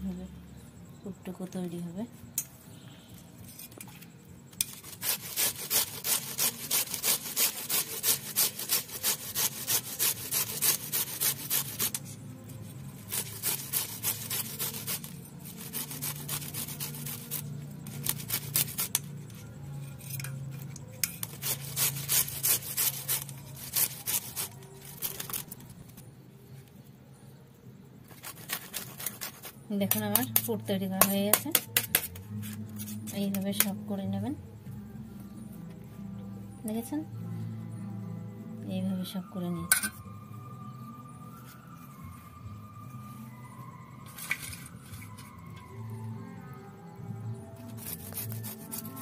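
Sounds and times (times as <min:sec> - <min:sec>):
grater rasping: 0:04.6 - 0:12.0, 0:13.0 - 0:19.0, 0:21.0 - 0:25.5, 0:47.8 - 0:49.0.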